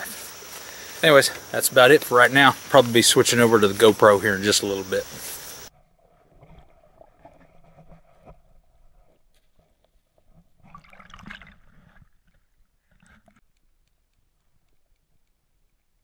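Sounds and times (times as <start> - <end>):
water splash: 10.6 - 11.9.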